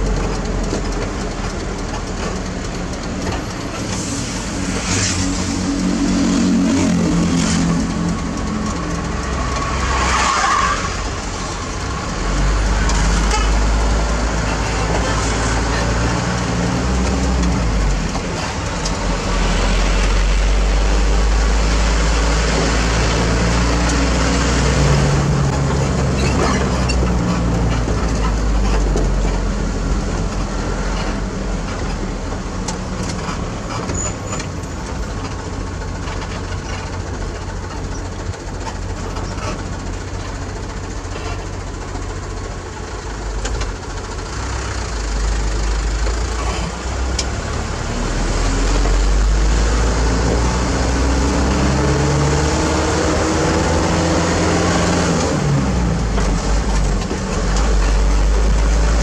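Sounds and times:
diesel truck engine drone: 0:00.0 - 0:59.0.

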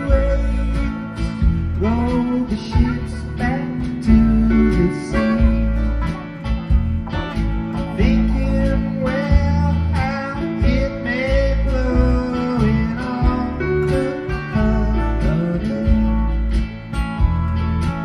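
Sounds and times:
acoustic guitar solo: 0:00.0 - 0:18.0.

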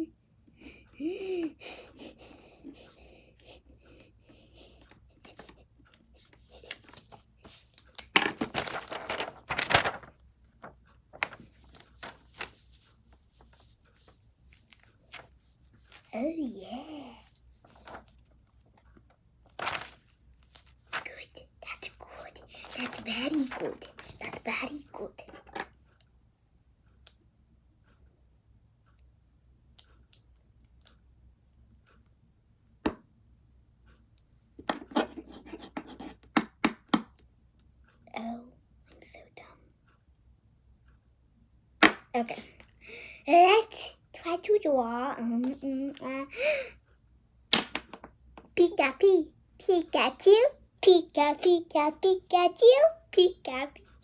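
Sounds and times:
paper rustling: 0:05.2 - 0:05.6, 0:06.2 - 0:16.1, 0:17.6 - 0:18.3, 0:19.5 - 0:21.2, 0:22.0 - 0:25.5
crackling rustle: 0:08.5 - 0:13.6.

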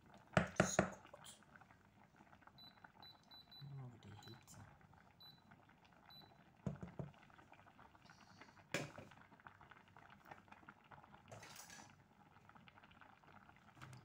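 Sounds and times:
pot of water boiling: 0:00.0 - 0:14.0.

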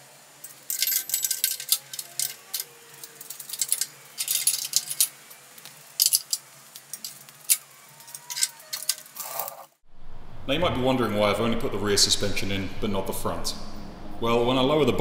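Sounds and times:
metal tools clinking and rattling: 0:00.4 - 0:05.2, 0:05.9 - 0:09.6.

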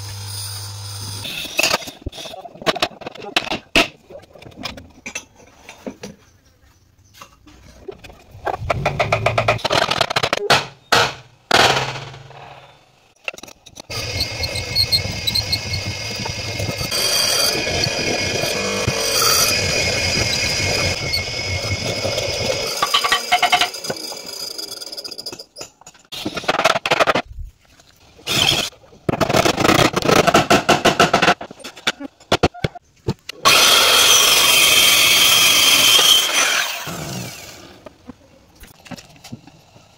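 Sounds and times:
chisel mortiser cutting wood: 0:13.9 - 0:24.7, 0:33.5 - 0:37.6.

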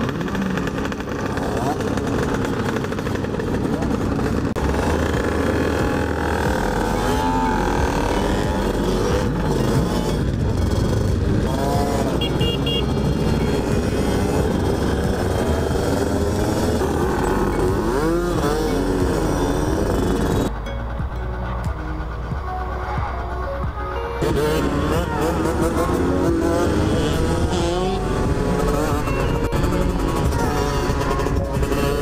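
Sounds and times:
motorcycle engines revving: 0:00.0 - 0:32.0.

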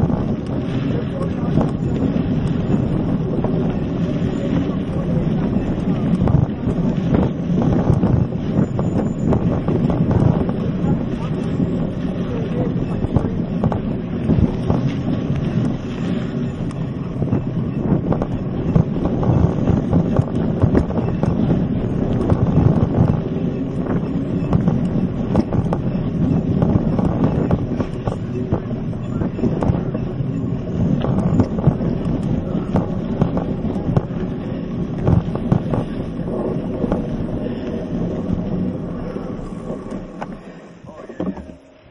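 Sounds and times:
bike rattling: 0:00.0 - 0:41.9
bike tyres rumbling on dirt: 0:00.0 - 0:41.9
wind on microphone: 0:00.0 - 0:41.9.

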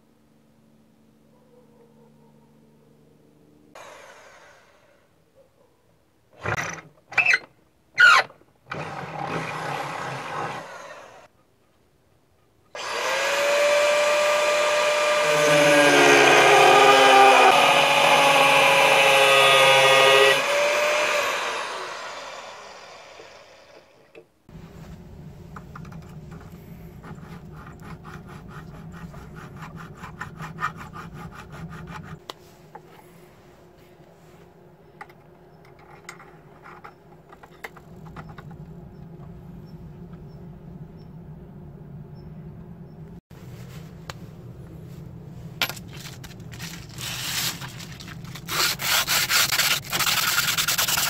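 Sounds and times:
grinder cutting steel: 0:12.8 - 0:24.0, 0:46.9 - 0:51.0
grinder spinning down: 0:12.8 - 0:24.1
file scraping steel: 0:26.8 - 0:32.3, 0:48.4 - 0:51.0.

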